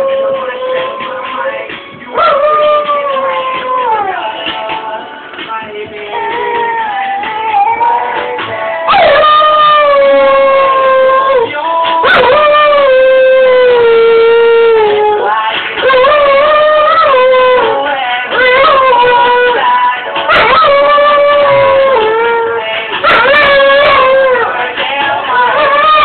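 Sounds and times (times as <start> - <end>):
dog howling: 0.0 - 1.4, 2.1 - 4.3, 6.1 - 26.0
pop song: 0.0 - 26.0.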